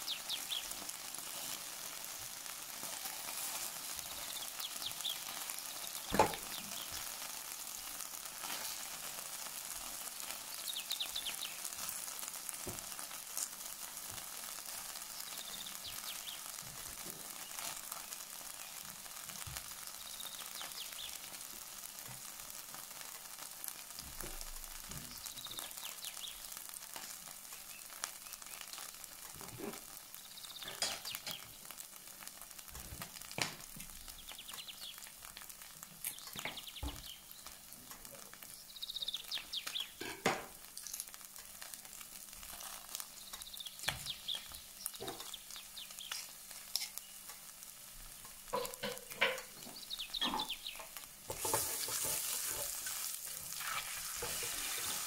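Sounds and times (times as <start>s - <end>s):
food sizzling in hot oil: 0.0s - 55.0s
utensil knocking on pan: 48.5s - 49.6s.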